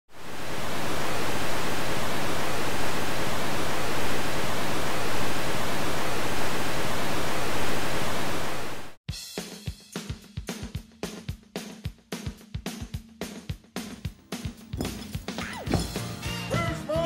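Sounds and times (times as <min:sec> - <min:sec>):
television static hiss: 0:00.2 - 0:09.0.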